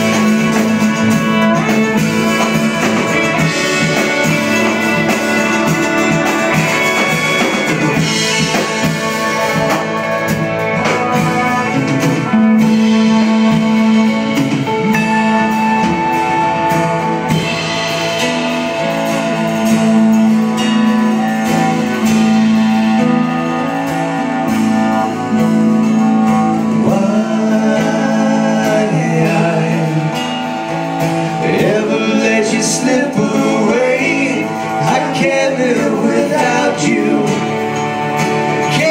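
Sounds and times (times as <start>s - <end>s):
live country-rock band: 0.0s - 38.9s
man singing: 26.6s - 37.9s, 38.6s - 38.9s.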